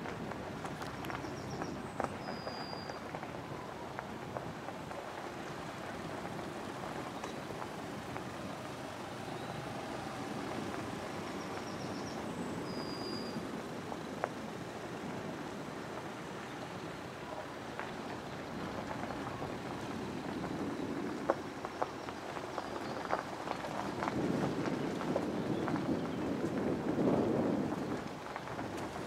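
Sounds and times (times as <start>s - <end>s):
open-air noise: 0.0s - 29.0s
high whistled call: 1.5s - 3.0s, 11.3s - 13.4s.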